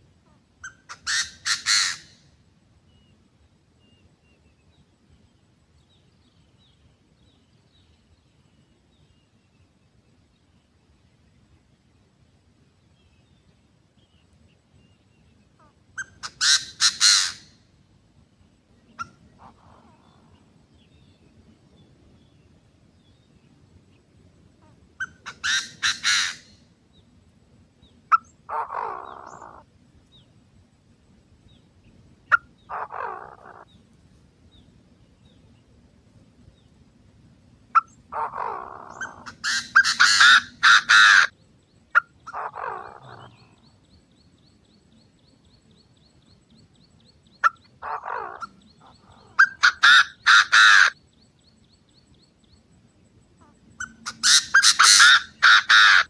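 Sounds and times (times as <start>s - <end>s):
francolins calling: 0.2s - 3.2s, 14.0s - 17.7s, 18.7s - 27.2s, 27.8s - 30.4s, 31.5s - 35.6s, 37.7s - 56.0s.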